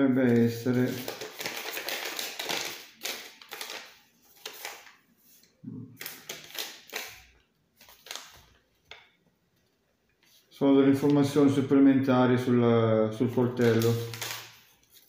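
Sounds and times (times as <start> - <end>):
paper leaflet crinkling: 0.2 - 9.0, 13.2 - 15.0.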